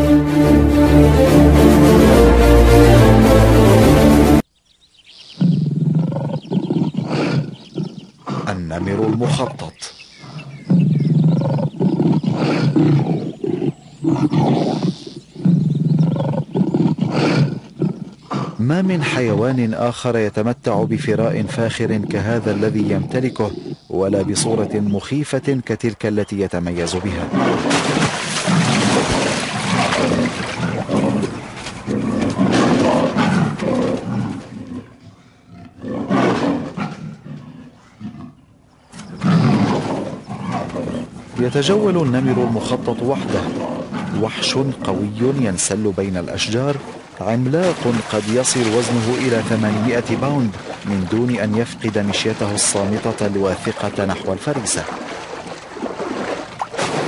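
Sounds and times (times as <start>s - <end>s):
tiger roaring: 5.4s - 19.6s, 27.0s - 55.2s.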